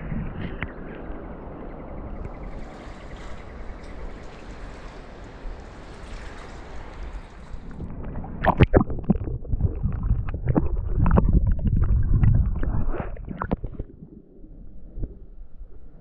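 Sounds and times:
muffled underwater sloshing: 0.0s - 16.0s
deep underwater rumble: 7.6s - 16.0s.

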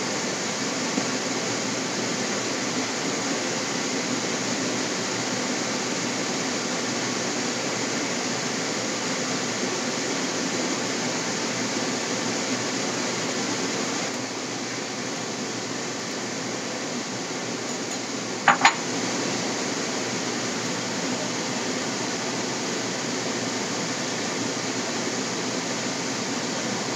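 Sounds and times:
spatula knocking against pan: 18.5s - 18.8s.

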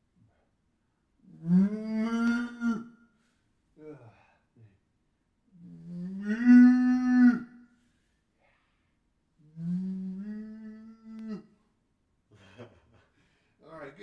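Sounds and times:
man imitating cow mooing: 1.4s - 2.9s, 5.8s - 7.5s, 9.7s - 11.4s.

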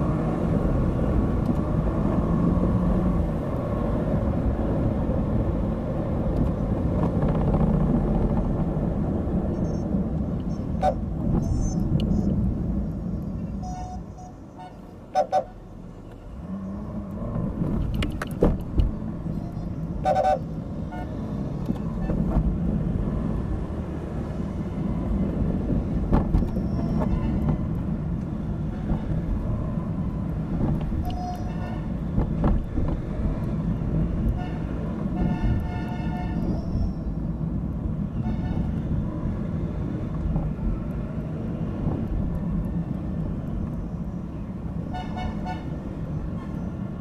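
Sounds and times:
street traffic: 0.0s - 47.0s
car horn toots: 20.0s - 21.1s.

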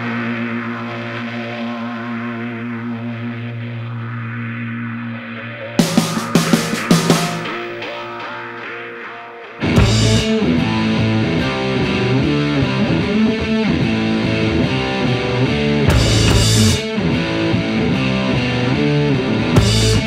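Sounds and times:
rock music with distorted guitar: 5.8s - 20.0s.

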